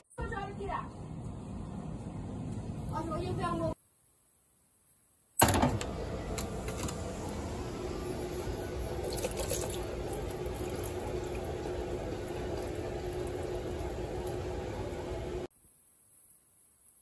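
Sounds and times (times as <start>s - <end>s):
water running from a tap: 9.0s - 15.0s.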